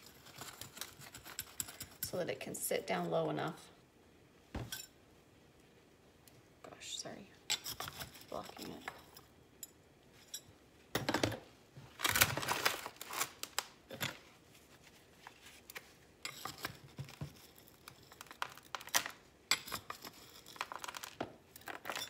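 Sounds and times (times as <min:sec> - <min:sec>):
trowel scraping potting mix: 0:00.0 - 0:02.3.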